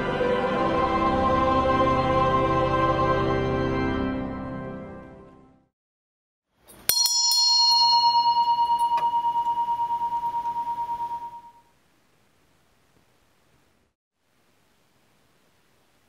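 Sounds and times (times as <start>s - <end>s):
choral music: 0.0s - 5.7s
bell ringing: 6.7s - 11.6s.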